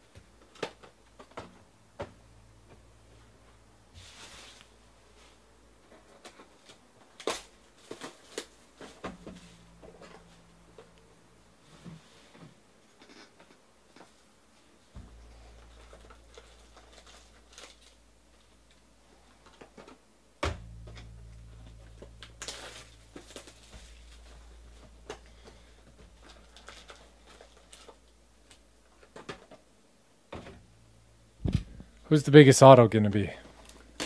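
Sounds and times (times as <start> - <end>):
plastic wrap crinkling: 15.2 - 18.7, 26.0 - 29.2.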